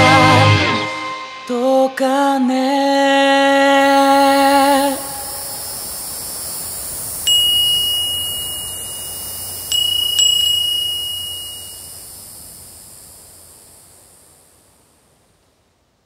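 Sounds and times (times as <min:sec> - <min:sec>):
steady hiss: 0:00.0 - 0:16.0
wind chime ringing: 0:07.3 - 0:12.2.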